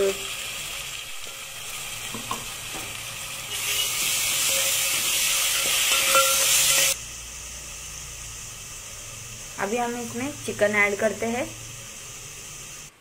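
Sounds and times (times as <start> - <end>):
paste sizzling in hot oil: 0.0 - 13.0
spoon scraping a metal pot: 3.5 - 7.0.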